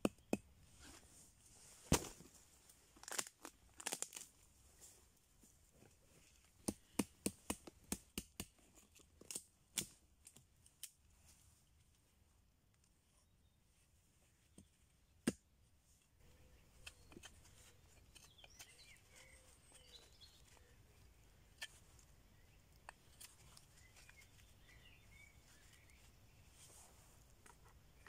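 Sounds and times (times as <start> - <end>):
birds chirping: 16.2 - 26.8.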